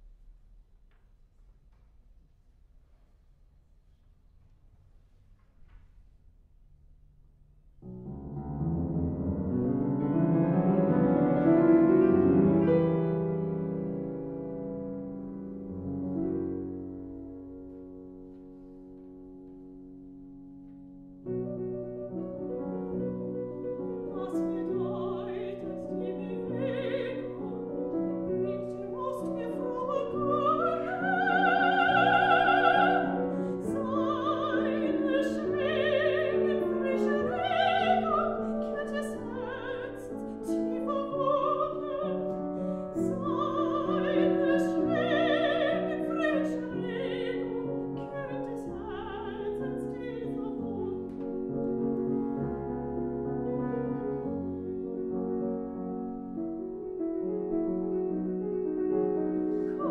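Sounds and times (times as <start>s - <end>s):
grand piano: 0.0s - 59.9s
soprano singing with vibrato: 23.0s - 51.5s, 59.4s - 59.9s.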